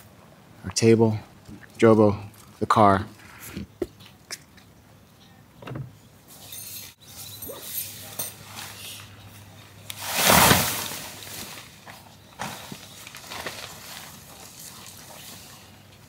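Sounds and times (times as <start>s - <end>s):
tent rustling: 9.9s - 15.8s
tent fabric rushing open: 10.0s - 11.7s.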